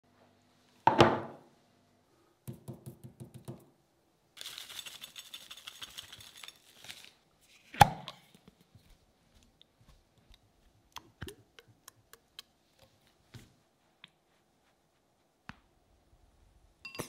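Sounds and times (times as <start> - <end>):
plate knocking on wooden table: 0.9 - 1.4
seasoning pattering onto chicken: 4.4 - 7.1.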